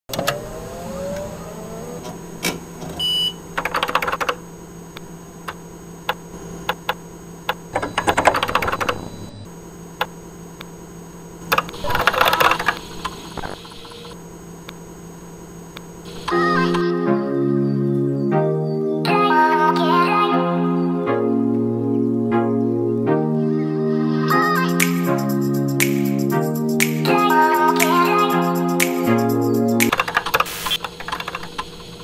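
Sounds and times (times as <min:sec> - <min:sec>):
low electronic hum: 0:00.1 - 0:03.6, 0:04.4 - 0:19.1
keyboard typing clicks: 0:03.6 - 0:04.4, 0:05.5 - 0:09.0.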